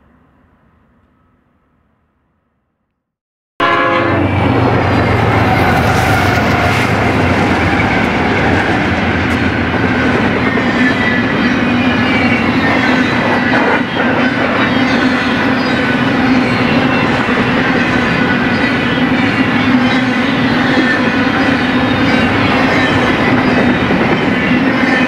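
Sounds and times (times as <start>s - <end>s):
freight train passing: 3.6s - 25.0s.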